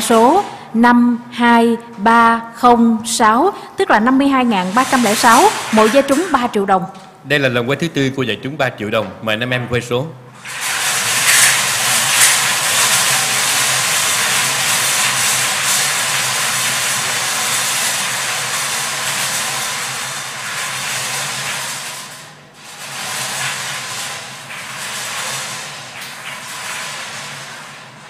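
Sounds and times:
lottery balls rattling in cage drums: 4.4 - 6.5, 10.4 - 28.0.

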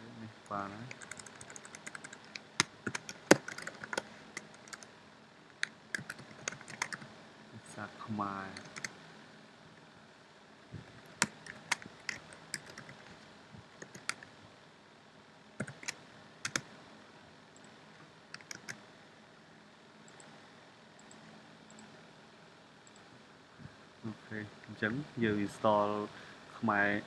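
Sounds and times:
computer keyboard typing: 0.8 - 4.9, 5.6 - 7.0, 8.5 - 8.9, 11.2 - 13.1, 13.8 - 14.2, 15.6 - 16.6, 18.4 - 18.8.

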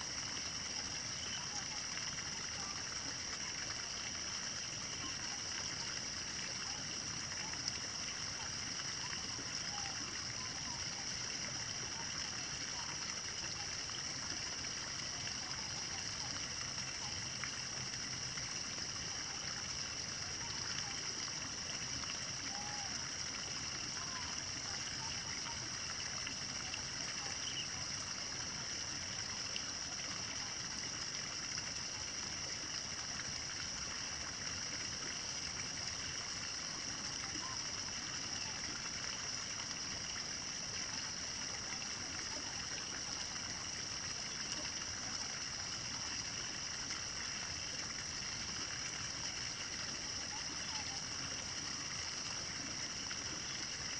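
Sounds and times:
noise like flowing water: 0.0 - 53.9
faint bird chirps: 27.3 - 27.8.

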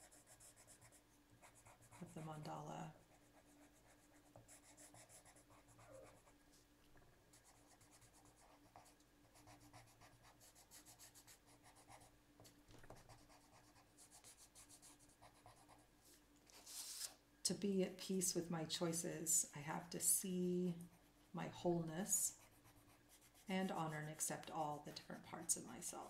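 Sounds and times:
pencil scratching on paper: 0.0 - 2.3, 3.1 - 6.4, 7.3 - 12.1, 12.9 - 15.8, 22.3 - 23.8.

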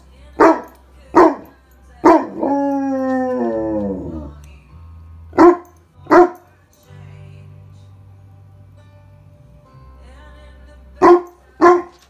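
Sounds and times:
pop song from a speaker: 0.0 - 12.0
dog barking: 0.4 - 2.4, 5.4 - 6.5, 11.0 - 12.0
dog howling: 2.1 - 4.4.

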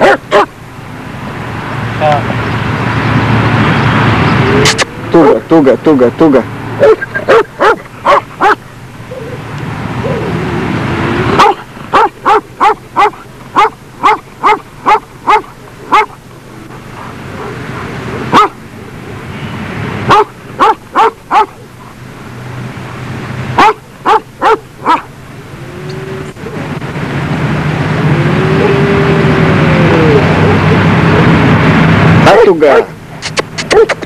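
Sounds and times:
dog barking: 0.0 - 0.5, 6.8 - 8.6, 11.4 - 16.2, 18.3 - 18.6, 20.1 - 21.6, 23.6 - 25.1, 33.7 - 34.0.

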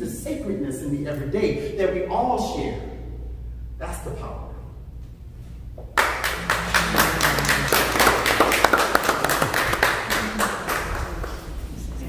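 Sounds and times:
small audience clapping: 5.9 - 12.0.

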